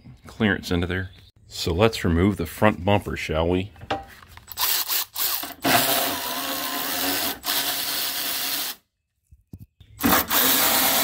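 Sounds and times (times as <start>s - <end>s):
cordless electric ratchet running: 4.5s - 8.8s, 10.0s - 11.0s.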